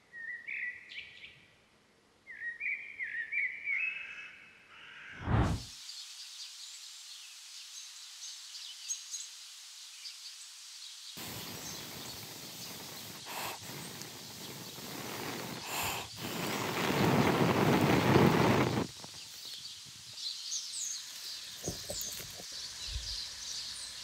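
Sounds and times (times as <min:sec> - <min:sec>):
dry pine needles rustling: 0:11.2 - 0:23.1
birds chirping: 0:11.2 - 0:24.0.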